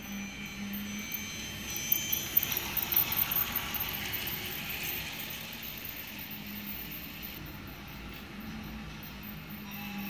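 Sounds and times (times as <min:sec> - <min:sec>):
toy train wheels clicking on track: 0:00.0 - 0:07.7
toy train motor whirring: 0:00.2 - 0:07.4.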